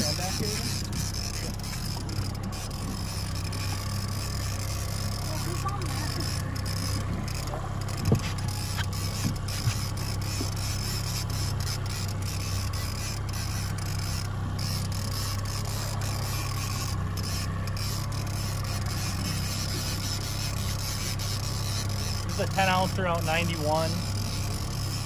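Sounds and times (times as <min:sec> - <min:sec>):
outboard motor humming: 0:00.0 - 0:25.0.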